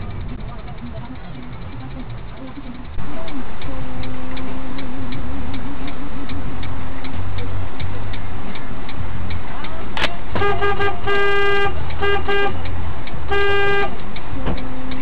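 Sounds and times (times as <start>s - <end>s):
low engine hum: 0.0s - 15.0s
steady ticking: 0.0s - 15.0s
car horn honking: 10.0s - 15.0s.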